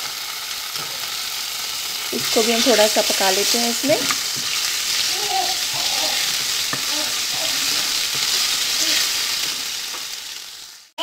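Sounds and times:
paste sizzling in hot oil: 0.0s - 11.0s
spatula scraping pan: 1.8s - 10.2s.

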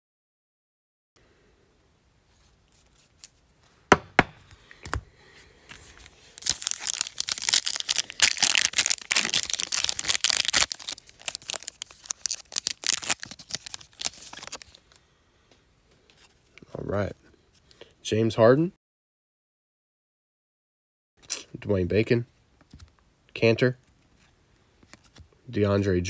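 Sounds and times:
foil wrapper tearing and crinkling: 6.3s - 14.8s.

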